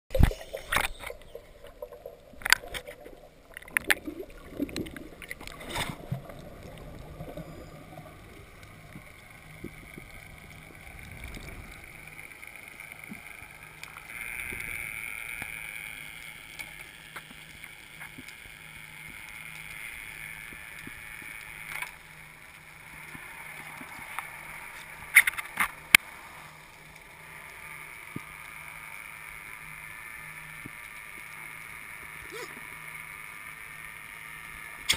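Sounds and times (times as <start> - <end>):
steady hiss: 0.1 - 34.9
faint low hum: 0.2 - 34.9.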